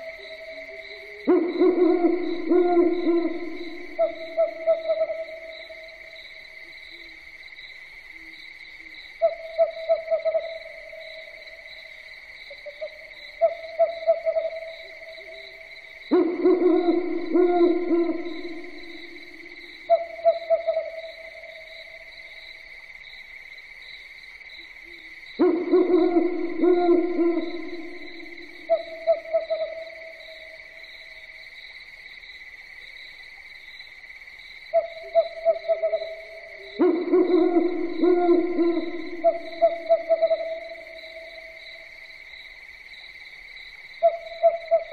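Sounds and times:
owls hooting: 0.0 - 5.5, 16.1 - 21.3, 25.4 - 30.0, 34.8 - 41.5, 44.0 - 44.9
high insect trill: 0.0 - 44.9.

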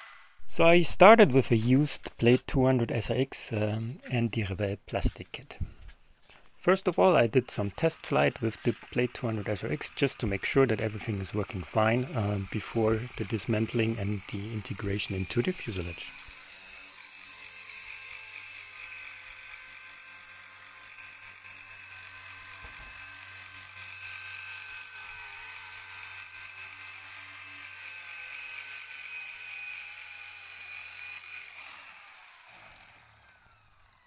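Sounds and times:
rc helicopter motor whine: 6.6 - 34.0
rotor whirr: 6.6 - 34.0.

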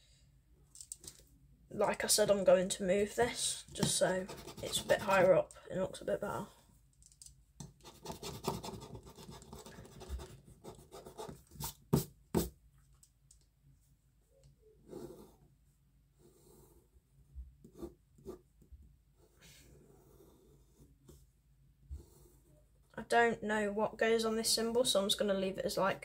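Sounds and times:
pencil scratching on paper: 3.8 - 5.4, 7.8 - 12.5, 14.8 - 15.5, 19.2 - 21.2.

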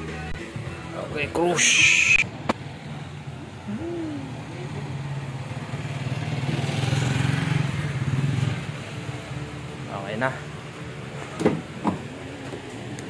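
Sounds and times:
hoot-like tone: 1.6 - 2.2
vehicle engine running: 2.3 - 13.0.

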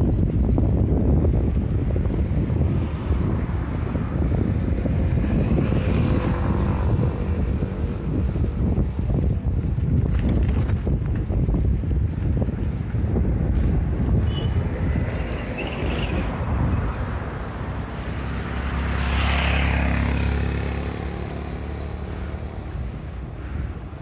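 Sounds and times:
wind buffeting microphone: 0.0 - 24.0
vehicle passing: 1.4 - 9.5, 13.0 - 24.0.

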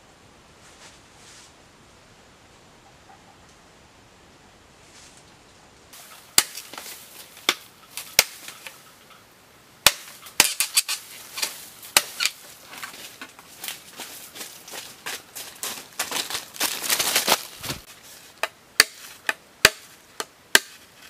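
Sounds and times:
leaves rustling and crackling: 0.5 - 1.6, 4.4 - 21.0
machete chopping bamboo: 6.0 - 8.8, 9.8 - 12.5, 16.0 - 20.9.

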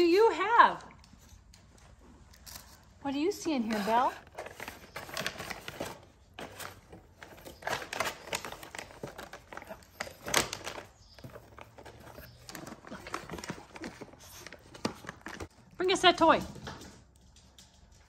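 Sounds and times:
plastic packaging crinkling: 3.5 - 15.5.

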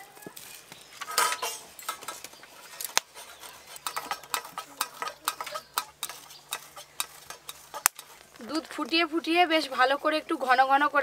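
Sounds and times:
scraping on metal grater: 1.1 - 8.2.

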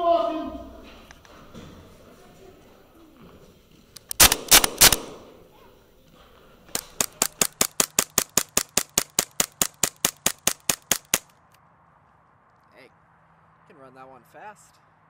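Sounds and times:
airsoft pistol firing rapidly: 4.1 - 5.4, 6.7 - 11.3
loud shots: 4.1 - 5.4.

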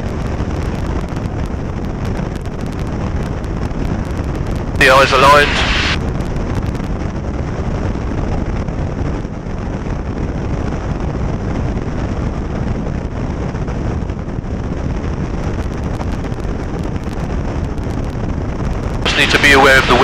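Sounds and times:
light aircraft engine droning: 0.0 - 20.0.

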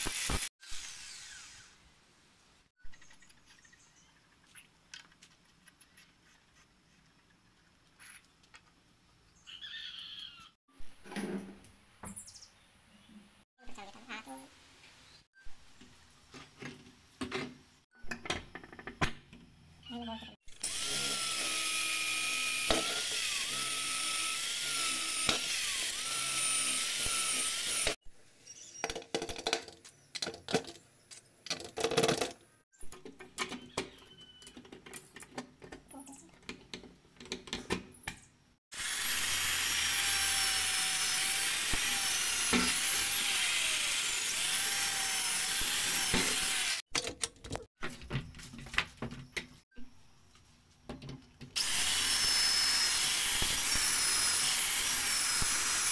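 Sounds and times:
power drill whine: 0.0 - 1.8, 20.6 - 28.0, 38.8 - 46.8, 51.6 - 55.9.

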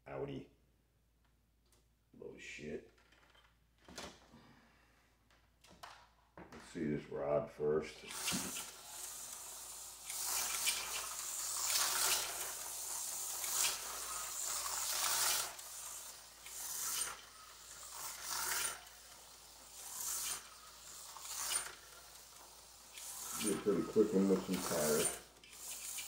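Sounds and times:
slot car motor whirring: 7.9 - 26.0.

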